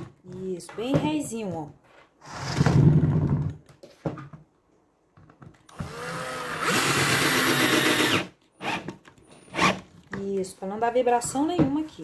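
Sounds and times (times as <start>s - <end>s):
electric drill driving screws: 5.7s - 9.8s.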